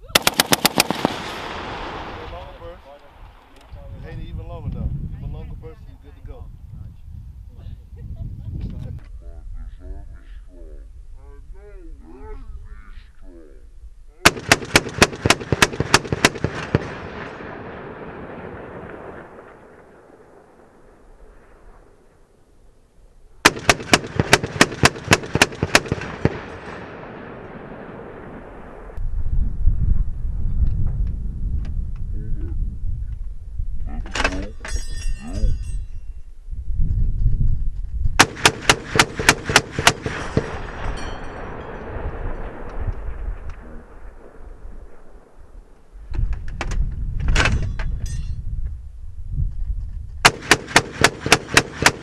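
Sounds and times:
heavy machine gun firing: 0.1s - 2.2s, 14.2s - 19.4s, 23.4s - 27.1s, 38.2s - 40.9s, 50.2s - 52.0s
gunshot echoes: 0.1s - 3.6s, 14.2s - 21.9s, 38.2s - 45.6s, 50.2s - 52.0s.

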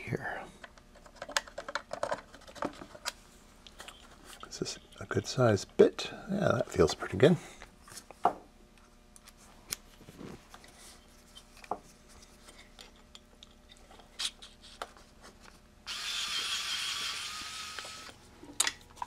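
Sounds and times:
electric screwdriver whirring: 15.9s - 18.2s.

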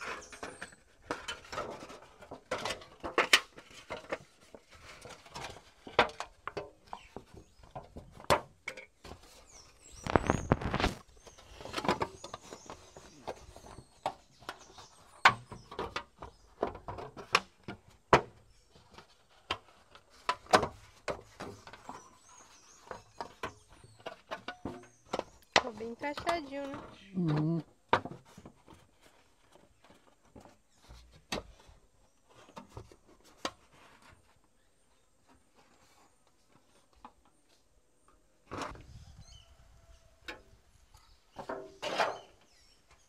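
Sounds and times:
thin metal sheet crinkling: 9.8s - 12.6s.

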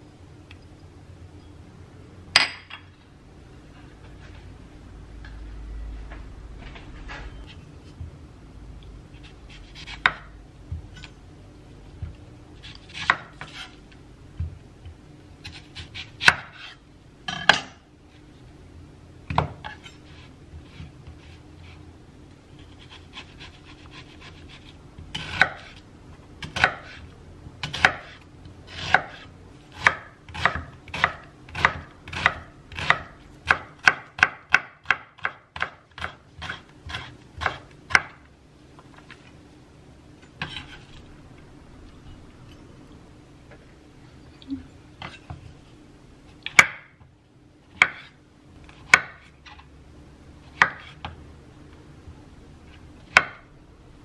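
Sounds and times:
knife chopping on wooden board: 9.6s - 10.8s, 12.0s - 13.7s, 15.4s - 17.8s, 26.4s - 27.0s, 27.6s - 38.2s, 46.4s - 46.9s, 48.9s - 49.3s, 50.6s - 51.2s.

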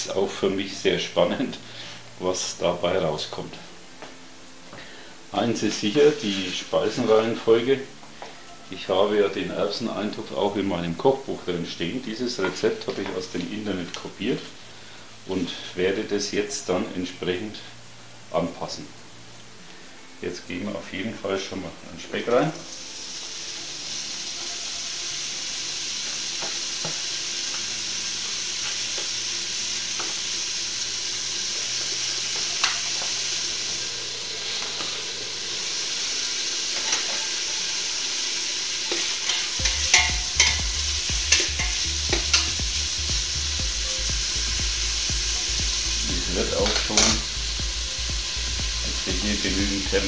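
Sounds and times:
bacon sizzling in a pot: 0.0s - 50.0s
low hum: 30.5s - 38.1s
utensil stirring and scraping: 38.8s - 42.6s.

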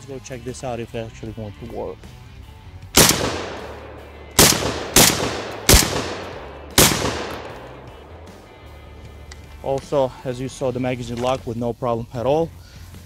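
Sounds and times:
shotgun shots echoing: 3.0s - 8.6s.

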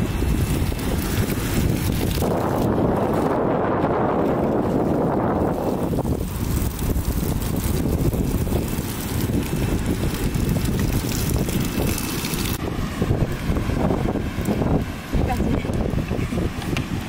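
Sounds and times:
shower spraying water: 0.0s - 3.2s, 5.4s - 12.6s
wind buffeting microphone: 0.0s - 17.0s.

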